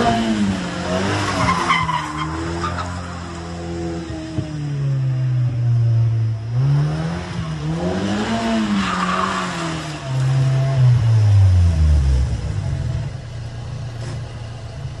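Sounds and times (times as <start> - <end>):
car engine revving: 0.0 - 15.0
car engine idling: 10.0 - 15.0.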